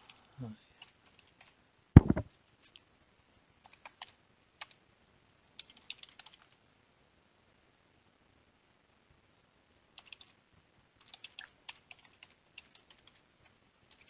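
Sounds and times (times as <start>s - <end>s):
heavy thump: 2.0s - 2.3s
keyboard typing: 3.6s - 4.8s, 5.6s - 6.6s, 10.0s - 10.3s, 11.0s - 13.2s.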